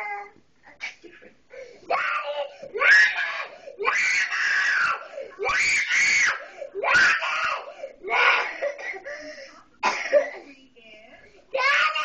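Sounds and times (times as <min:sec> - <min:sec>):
girl screaming: 0:01.9 - 0:08.3.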